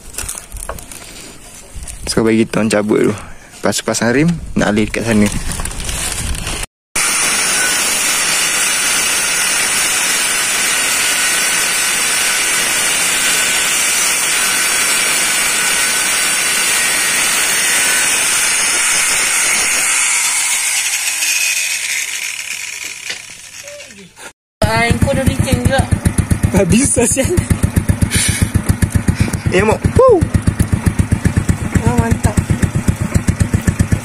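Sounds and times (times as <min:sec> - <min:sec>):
angle grinder grinding metal: 0:07.0 - 0:29.8.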